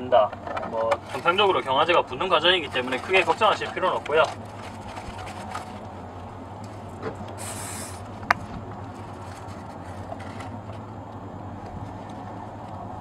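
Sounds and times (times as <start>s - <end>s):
steady low hum: 0.0s - 13.0s
aerosol spray hiss: 7.4s - 8.0s.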